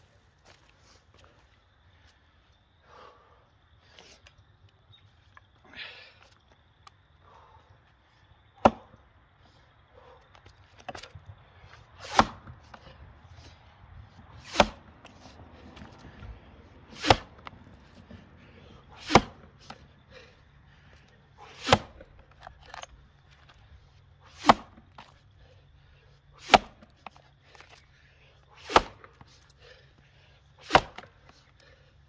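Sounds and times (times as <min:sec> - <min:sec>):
axe chopping log: 0:08.6 - 0:09.0, 0:12.0 - 0:12.9, 0:14.3 - 0:15.2, 0:16.9 - 0:18.1, 0:18.9 - 0:19.8, 0:21.4 - 0:22.9, 0:24.3 - 0:25.2, 0:26.4 - 0:27.8, 0:28.6 - 0:29.4, 0:30.6 - 0:31.2.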